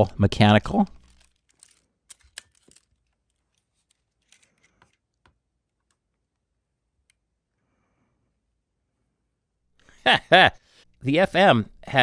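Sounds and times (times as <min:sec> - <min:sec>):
camera bodies clicking and rubbing: 0:00.9 - 0:06.0.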